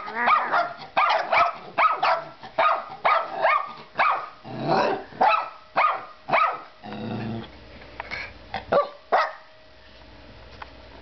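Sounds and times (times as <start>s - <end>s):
small dog barking: 0.0s - 6.7s, 8.7s - 9.5s.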